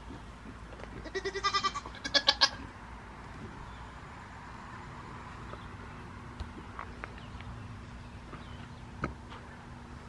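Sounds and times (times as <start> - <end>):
goat bleating: 1.0 - 2.7.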